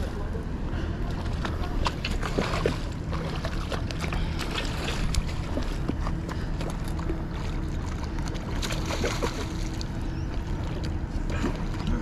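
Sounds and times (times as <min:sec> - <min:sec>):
water noise: 0:00.0 - 0:12.0
fish splashing at the surface: 0:01.6 - 0:05.9, 0:07.3 - 0:09.8.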